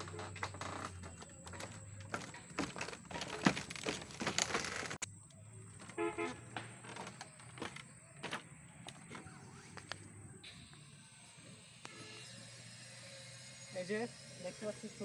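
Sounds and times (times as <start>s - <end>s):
footsteps on wooden footbridge: 0.0s - 5.0s, 5.8s - 9.8s.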